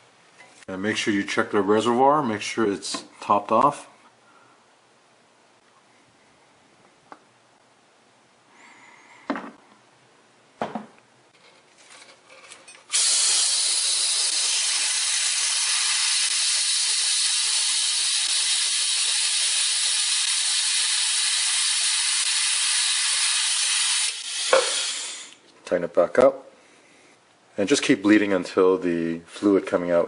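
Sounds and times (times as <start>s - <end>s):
pneumatic bleeder hissing: 12.9s - 25.4s.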